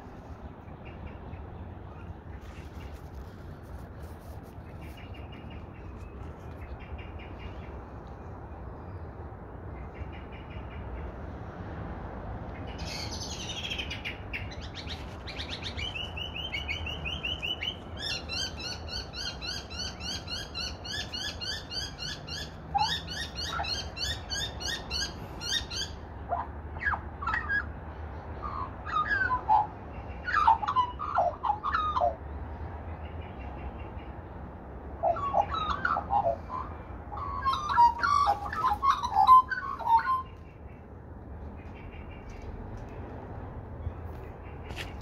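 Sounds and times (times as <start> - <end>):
magpies calling: 12.7 - 27.8, 28.4 - 32.2, 35.0 - 40.9.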